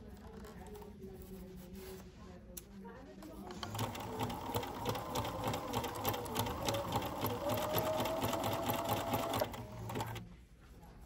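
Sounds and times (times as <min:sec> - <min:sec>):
sewing machine stitching: 0:03.5 - 0:10.2.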